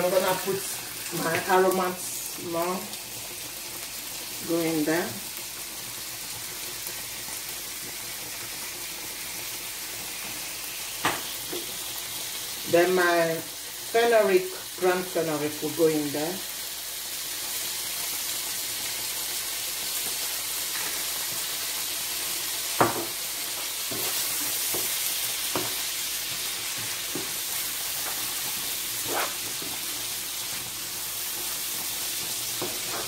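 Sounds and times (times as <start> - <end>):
seafood sizzling in a frying pan: 0.0 - 33.0
wooden spoon knocking on pan: 22.8 - 23.2, 25.5 - 25.8.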